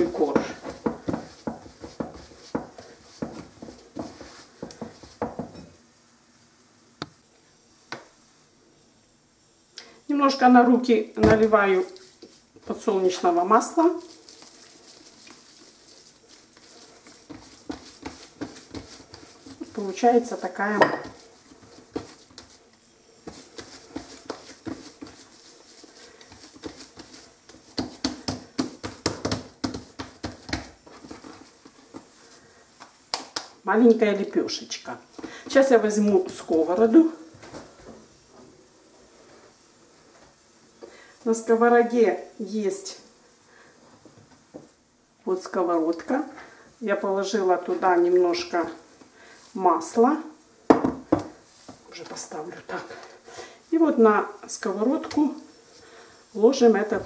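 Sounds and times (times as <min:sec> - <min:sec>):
dough kneaded in glass bowl: 0:00.0 - 0:05.7, 0:11.2 - 0:32.4, 0:33.1 - 0:37.2.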